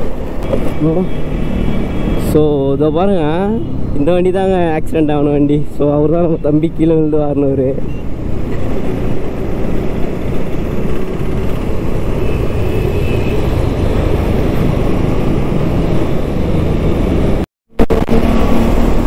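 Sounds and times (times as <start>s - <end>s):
wind rushing over microphone: 8.0s - 17.4s.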